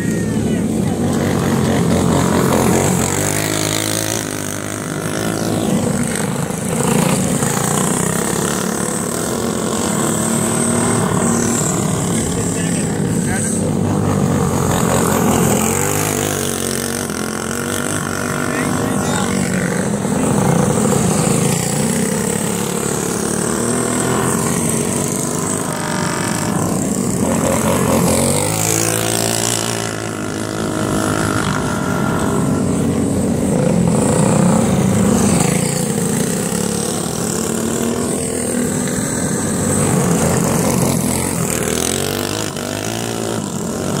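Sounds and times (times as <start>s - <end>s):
go-kart engines racing: 0.0s - 44.0s.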